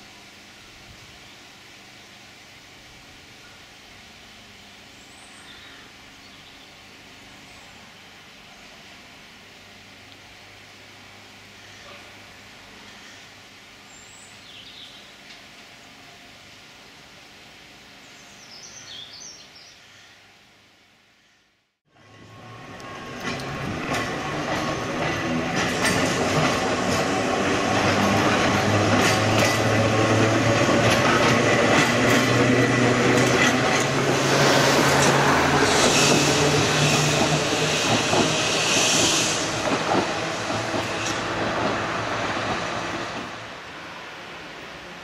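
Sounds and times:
tram electric motors humming: 21.9s - 45.0s
wheels clicking over rail joints: 22.8s - 34.2s
hiss: 34.1s - 41.3s.

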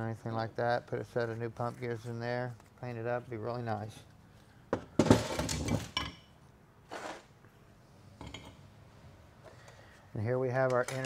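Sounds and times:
metal parts clattering on workbench: 5.0s - 6.2s.

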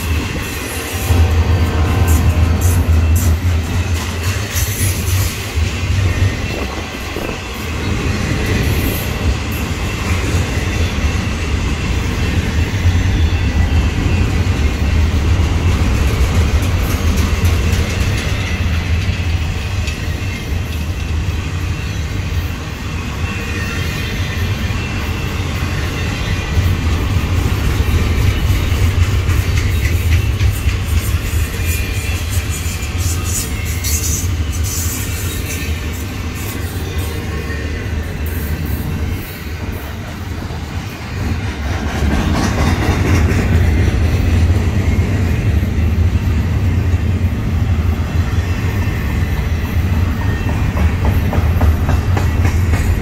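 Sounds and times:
clatter from train cars: 0.0s - 10.5s, 14.5s - 21.4s, 26.5s - 36.8s, 38.6s - 45.2s, 49.4s - 53.0s
freight train wheels rumbling: 0.0s - 53.0s.

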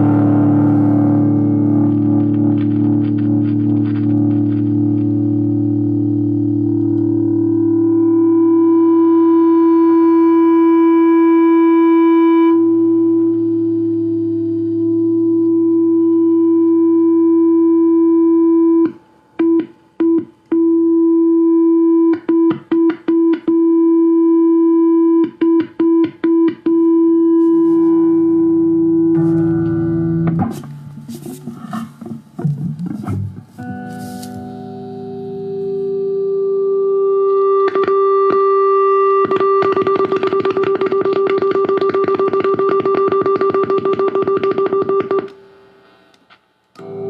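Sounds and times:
electric guitar feedback: 0.0s - 47.0s.

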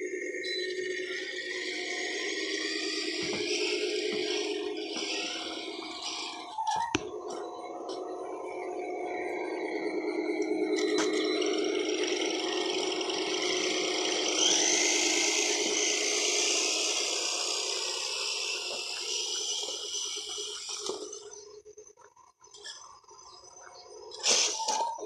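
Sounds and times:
electric motor and drivetrain whining: 0.0s - 25.0s
hiss: 24.2s - 24.9s.

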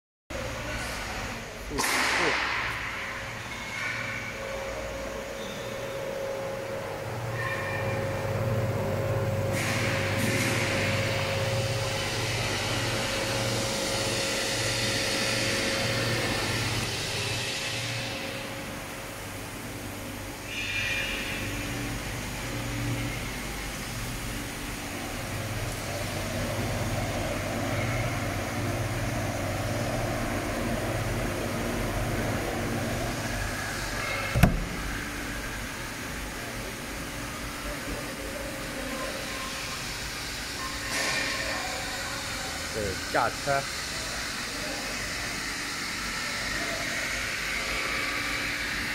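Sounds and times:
freezer fans whirring: 0.3s - 48.9s
compressor humming: 4.3s - 39.0s.

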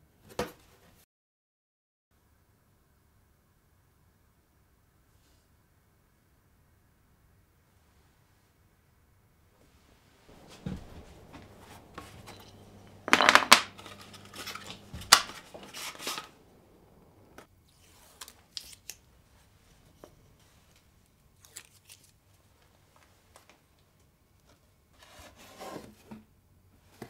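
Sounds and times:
faint low hum: 9.3s - 18.0s.

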